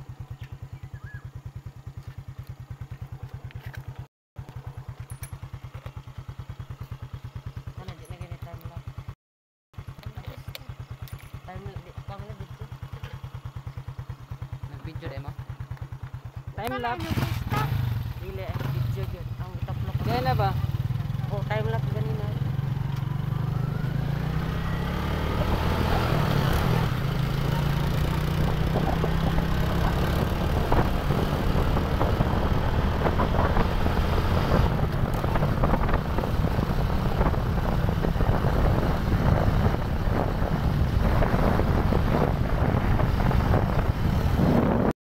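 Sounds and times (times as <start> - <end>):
motorcycle engines running: 0.0 - 9.2, 9.8 - 44.9
wind buffeting microphone: 24.1 - 44.9.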